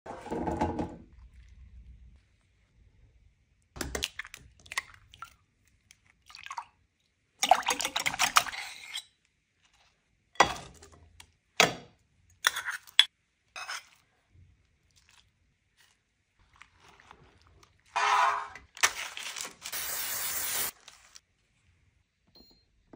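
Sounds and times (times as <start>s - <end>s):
utensil stirring in ceramic bowl: 12.4s - 14.1s.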